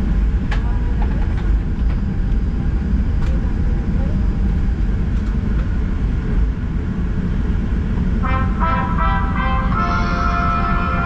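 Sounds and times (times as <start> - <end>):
airliner cabin rumble: 0.0 - 11.0
music: 8.2 - 11.0.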